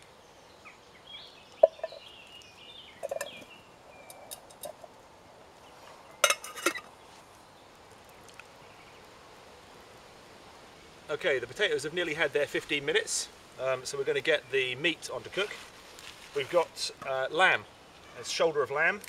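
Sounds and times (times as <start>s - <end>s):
bird calling: 0.6s - 4.4s
metal cookware clattering: 6.2s - 6.8s.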